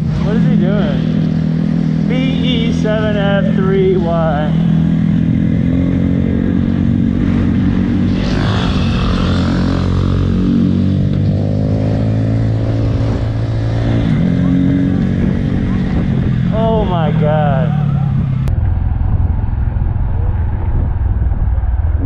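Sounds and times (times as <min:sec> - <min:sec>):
motorcycle engine running: 0:00.0 - 0:22.0
passing motorcycle engine: 0:00.0 - 0:22.0.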